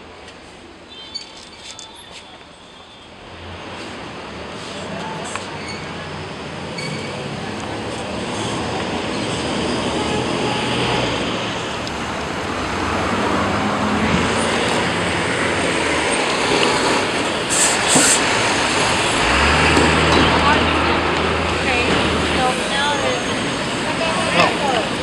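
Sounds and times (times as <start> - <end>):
vehicle rumble: 3.2 - 25.0
short high hisses: 17.5 - 18.2.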